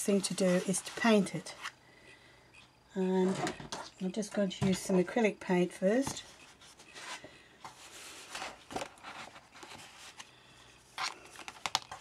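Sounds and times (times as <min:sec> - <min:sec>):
paper and fabric rustling: 0:00.0 - 0:01.7.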